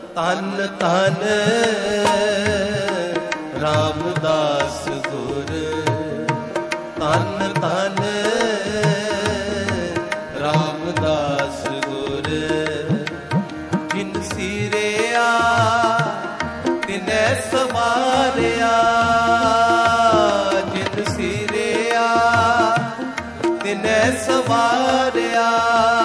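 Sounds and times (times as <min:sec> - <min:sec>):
person singing devotional song: 0:00.0 - 0:26.0
tabla: 0:00.0 - 0:26.0.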